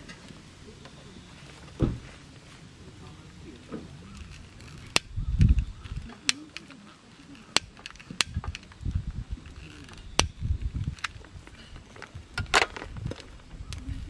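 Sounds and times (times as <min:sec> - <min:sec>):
sharp clicks and knocks: 0:03.6 - 0:13.9.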